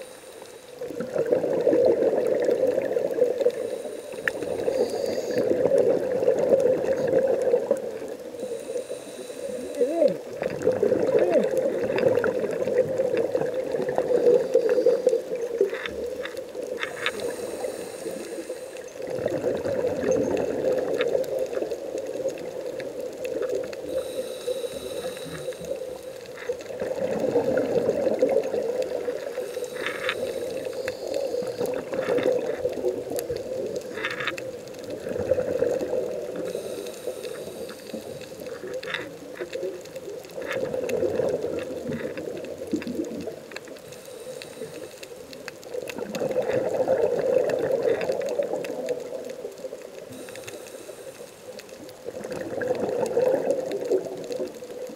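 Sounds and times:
diver breathing through regulator: 0.0 - 0.8, 3.4 - 5.8, 8.3 - 10.2, 14.0 - 15.4, 16.8 - 19.0, 23.8 - 26.5, 29.1 - 32.5, 36.3 - 38.9, 43.8 - 45.3, 50.1 - 51.5
bubbling exhalations: 0.8 - 3.4, 9.5 - 15.5, 19.0 - 22.6, 26.6 - 33.8, 34.9 - 37.9, 45.9 - 48.8, 52.0 - 54.2.

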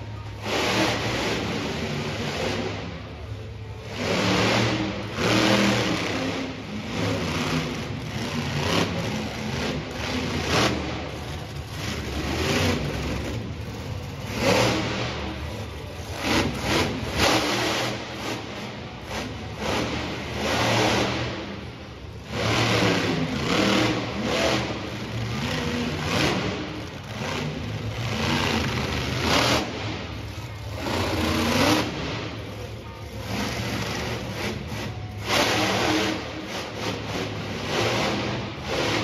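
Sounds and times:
monster truck engine revving: 0.0 - 39.0.

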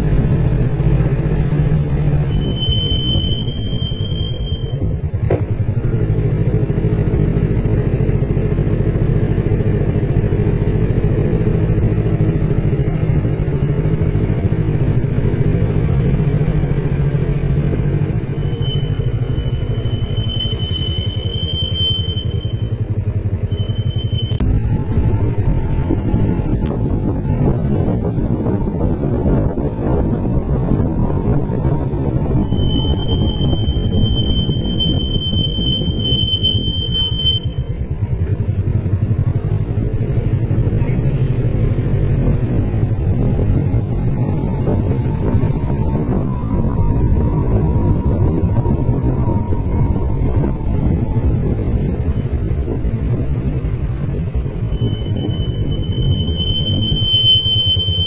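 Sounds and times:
motorcycle engine running: 0.0 - 57.0
road and wind rumble: 0.0 - 58.0
high whistle: 2.2 - 5.0, 18.2 - 24.8, 32.2 - 37.9, 54.5 - 58.0.

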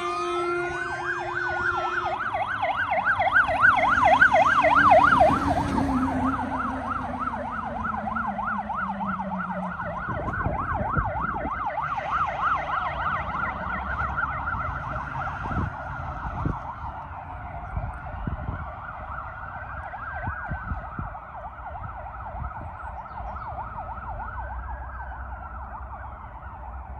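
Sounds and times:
truck diesel engine passing: 0.0 - 18.1
fast yelp siren: 0.0 - 26.9
slow wail siren: 0.0 - 26.9.

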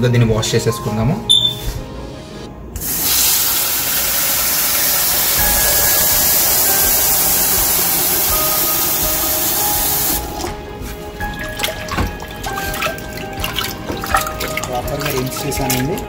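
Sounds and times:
tap water running into pot: 2.8 - 16.0
hand swishing lentils in water: 10.2 - 16.0.

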